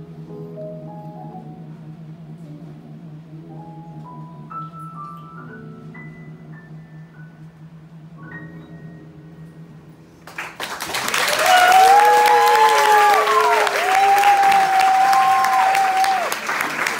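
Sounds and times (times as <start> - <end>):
audience applause: 10.3 - 16.9
shouted cheers: 11.1 - 16.9.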